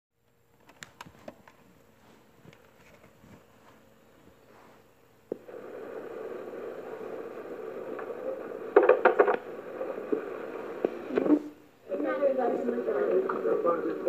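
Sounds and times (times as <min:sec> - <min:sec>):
faint hum: 0:00.2 - 0:14.0
tape hiss: 0:00.2 - 0:14.0
cassette click: 0:08.7 - 0:09.4.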